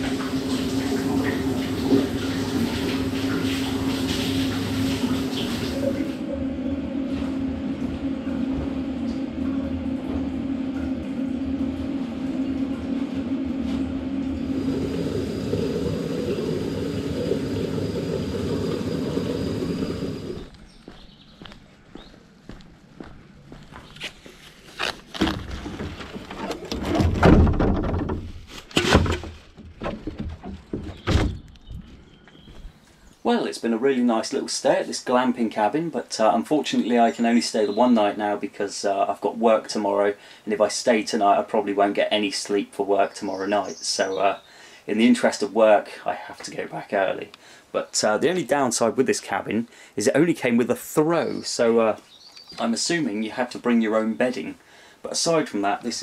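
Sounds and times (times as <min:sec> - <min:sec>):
shower spray hissing: 0:00.0 - 0:06.2, 0:14.4 - 0:20.5
low hum: 0:00.0 - 0:23.8.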